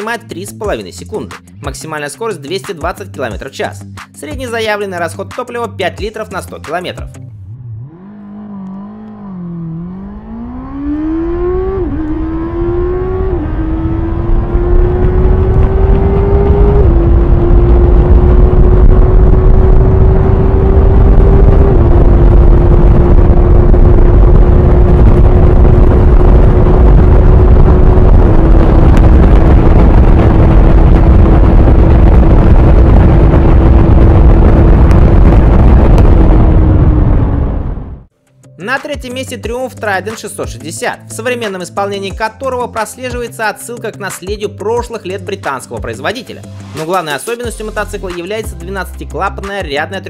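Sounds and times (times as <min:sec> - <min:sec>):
gear upshifts: 0:07.2 - 0:36.9
motorcycle engine accelerating: 0:07.2 - 0:38.1
wind rush on microphone: 0:11.0 - 0:38.1.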